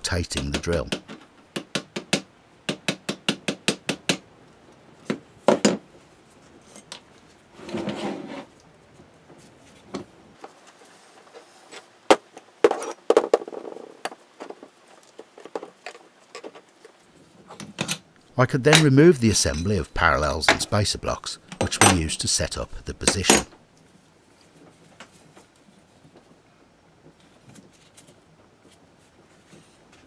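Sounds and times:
scrape: 7.5s - 8.5s.

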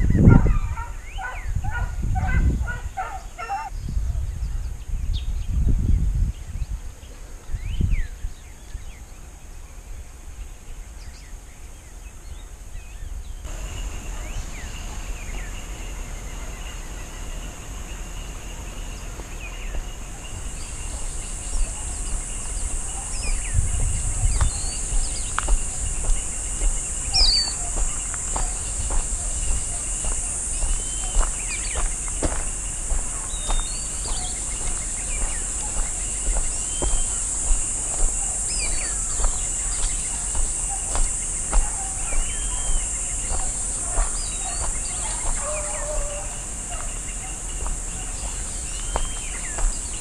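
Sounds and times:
low wind rumble: 0.0s - 50.0s
bird chirps: 13.4s - 50.0s
high insect buzz: 13.5s - 50.0s.

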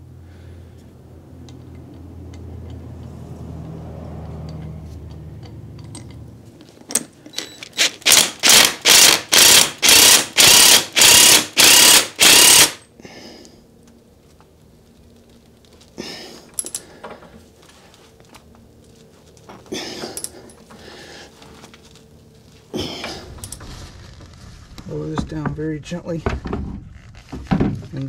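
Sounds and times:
impact wrench humming and hammering: 7.4s - 12.9s.

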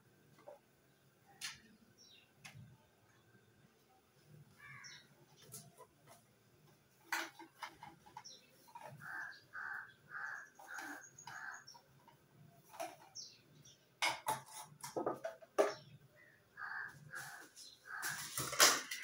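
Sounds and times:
crow cawing: 4.6s - 5.0s, 9.0s - 11.7s, 16.6s - 18.4s
sharp knocks and clatter: 14.0s - 15.9s, 18.0s - 19.0s.

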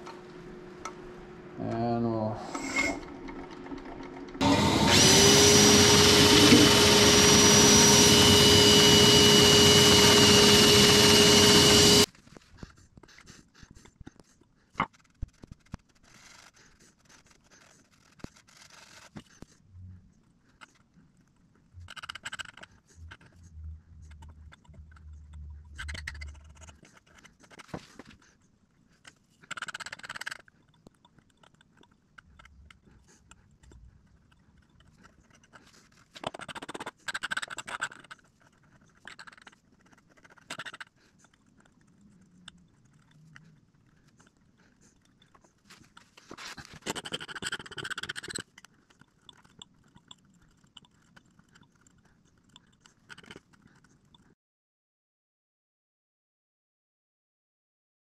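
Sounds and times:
low hum: 0.0s - 12.1s, 19.6s - 20.3s, 21.6s - 27.1s
awl scratching wood: 5.0s - 19.6s.

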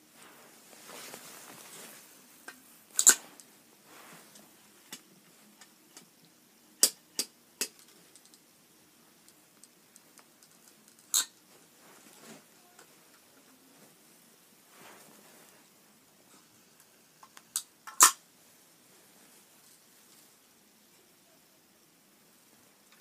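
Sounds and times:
faint rustling: 0.0s - 5.6s, 9.2s - 16.8s.

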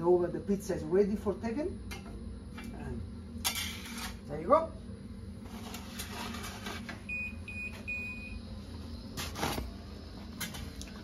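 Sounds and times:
steady low hum: 0.0s - 11.0s
electronic oven beeping: 6.7s - 9.2s.

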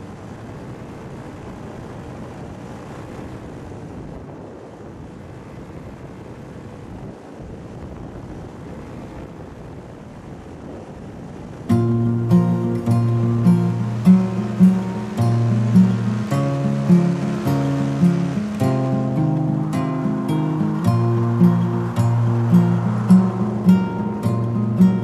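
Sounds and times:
wind on microphone: 0.0s - 25.0s
guitar music: 11.7s - 25.0s.

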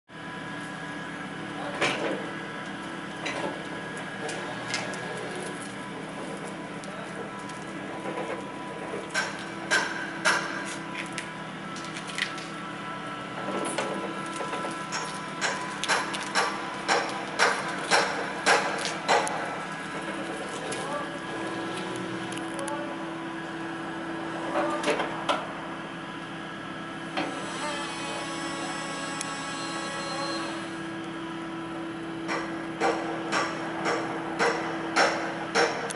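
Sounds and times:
electric vehicle hum and whine: 0.1s - 35.5s.

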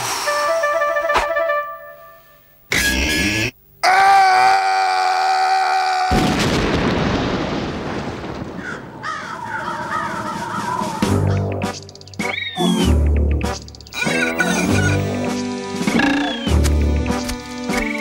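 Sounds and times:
cartoon explosion: 6.1s - 8.9s.

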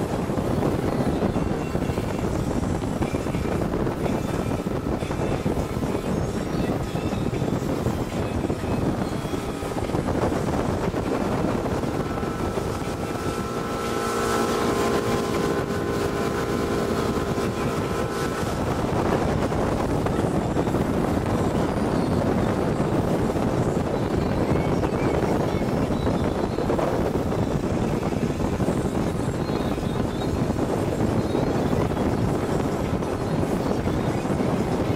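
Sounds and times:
steady hum of tones: 0.0s - 24.9s
boat motor running: 0.0s - 34.9s
wind buffeting microphone: 0.0s - 34.9s.

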